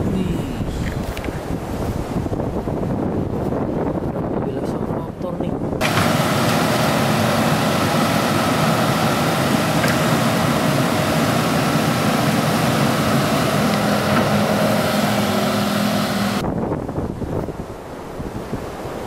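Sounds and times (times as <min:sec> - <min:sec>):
excavator diesel engine running: 0:05.8 - 0:16.4.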